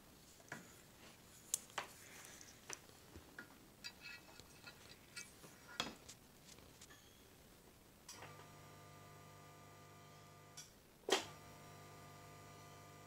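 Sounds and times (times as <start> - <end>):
faint metallic ringing: 6.9 - 7.5.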